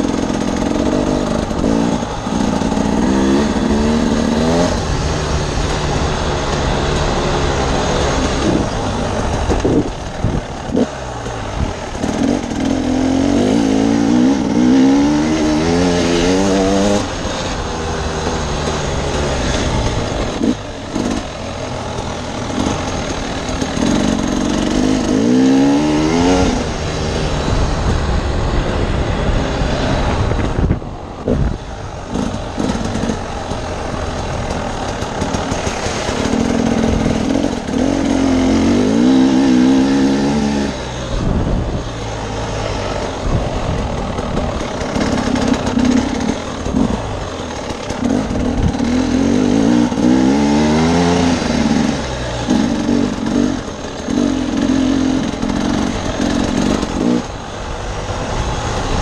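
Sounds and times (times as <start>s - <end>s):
dirt bike engine revving: 0.0s - 59.0s
wind rush: 7.6s - 15.6s, 23.8s - 33.3s, 36.3s - 47.3s.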